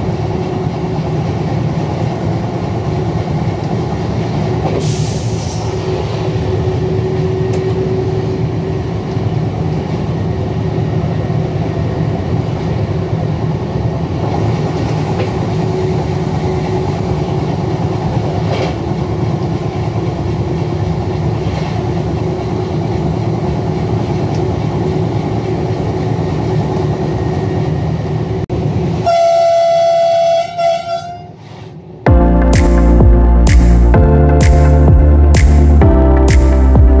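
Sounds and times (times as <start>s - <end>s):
train wheels rumbling on track: 0.0s - 34.0s
train horn: 29.0s - 31.4s.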